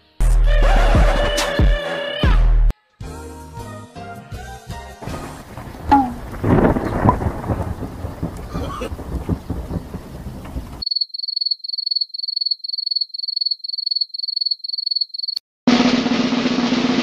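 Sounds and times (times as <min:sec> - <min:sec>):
rumbling haze: 0:05.0 - 0:10.8.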